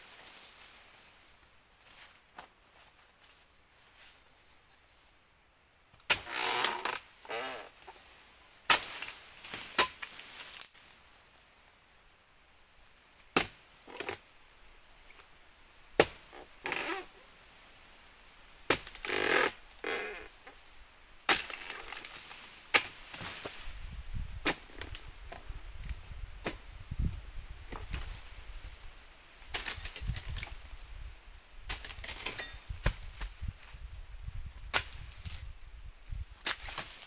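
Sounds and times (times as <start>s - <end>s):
fronds rustling: 0.0s - 5.1s, 6.1s - 12.2s, 12.8s - 37.0s
blade chopping palm fronds: 6.1s - 7.6s, 8.7s - 10.8s, 13.3s - 14.2s, 16.0s - 17.0s, 18.7s - 20.0s, 21.3s - 23.6s, 36.4s - 37.0s.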